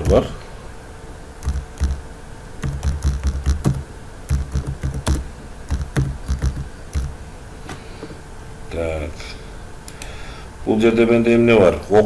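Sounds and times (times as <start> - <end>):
keyboard typing: 1.4 - 2.0, 2.6 - 7.2.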